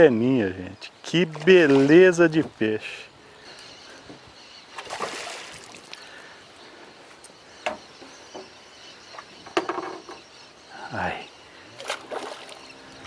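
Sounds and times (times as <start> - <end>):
fish splashing at water surface: 4.8 - 6.0.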